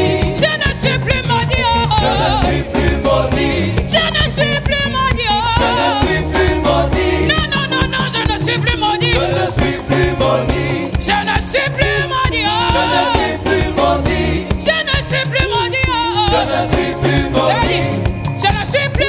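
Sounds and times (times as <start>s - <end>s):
woman singing with vibrato: 0.0s - 2.5s, 3.8s - 6.2s, 7.1s - 9.5s, 11.0s - 13.4s, 14.5s - 16.8s
band playing steady beat: 0.0s - 19.0s.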